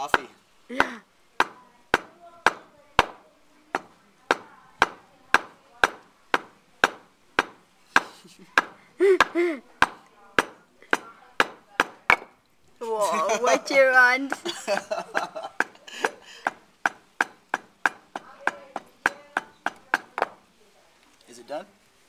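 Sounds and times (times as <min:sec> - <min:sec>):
pestle pounding in wooden mortar: 0:00.0 - 0:12.4, 0:14.2 - 0:20.4
person laughing: 0:08.0 - 0:09.6, 0:12.8 - 0:13.8, 0:14.4 - 0:16.5.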